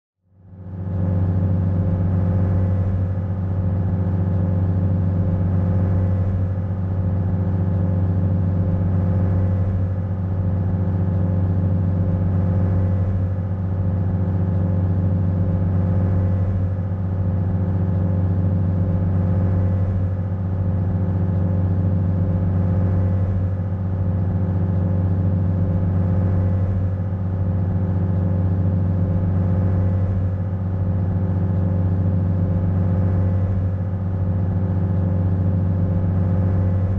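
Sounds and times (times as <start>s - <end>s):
ferry engine drone: 0.3s - 36.9s.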